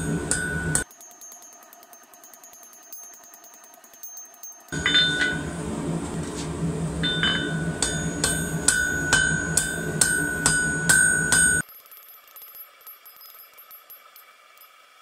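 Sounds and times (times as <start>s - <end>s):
low steady rumble: 0.0s - 0.8s, 4.8s - 11.6s
hammer striking metal on anvil: 0.0s - 1.6s, 2.6s - 5.6s, 7.0s - 11.6s.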